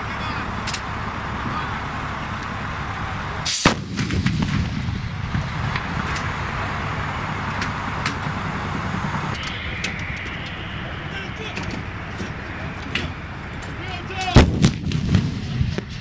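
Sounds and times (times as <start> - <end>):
low background rumble: 0.0 - 16.0
howitzer firing: 3.5 - 16.0.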